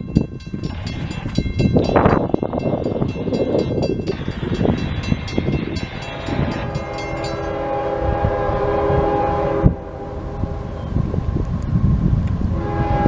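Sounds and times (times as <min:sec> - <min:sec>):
railroad crossing bell ringing: 0:00.0 - 0:08.6
locomotive horn: 0:05.9 - 0:11.1, 0:12.5 - 0:13.0.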